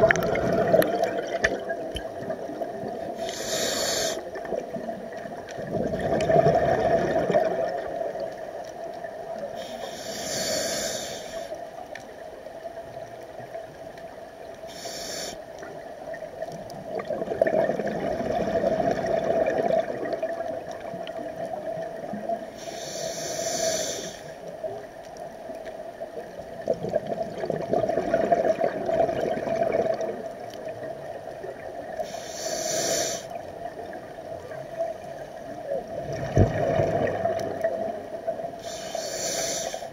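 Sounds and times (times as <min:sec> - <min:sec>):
exhaled bubbles rumbling: 0:00.0 - 0:03.3, 0:04.3 - 0:09.4, 0:16.1 - 0:22.4, 0:26.2 - 0:32.0, 0:33.5 - 0:38.6
regulator hissing inhale: 0:03.1 - 0:04.4, 0:09.5 - 0:11.6, 0:14.7 - 0:15.6, 0:22.5 - 0:24.5, 0:32.0 - 0:33.4, 0:38.6 - 0:39.9.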